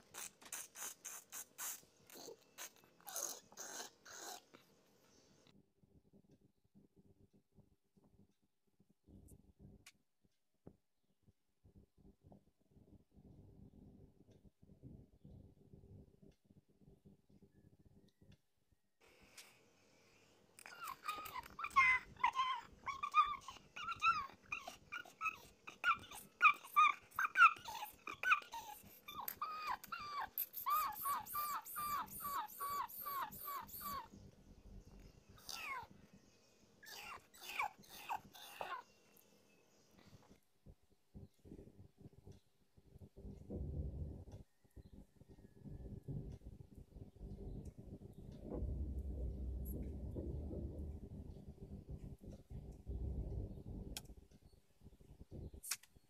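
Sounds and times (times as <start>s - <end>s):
kittens squealing mews: 20.6s - 34.1s, 35.4s - 35.9s, 36.8s - 38.8s.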